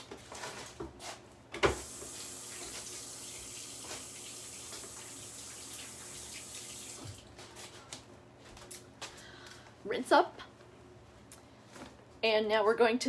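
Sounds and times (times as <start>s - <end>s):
tap water running into sink: 1.6s - 7.2s.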